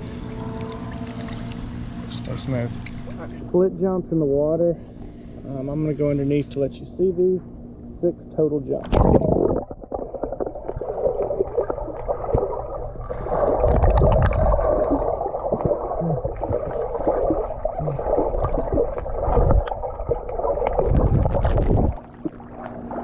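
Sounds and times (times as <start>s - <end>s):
underwater churning and gurgling: 8.8s - 23.0s
heavy low underwater thumps: 8.9s - 22.4s.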